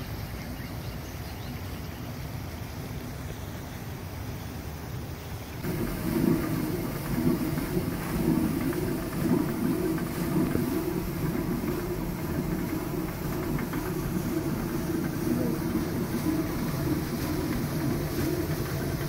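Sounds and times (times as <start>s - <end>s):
millstone grinding grain: 5.6s - 19.0s.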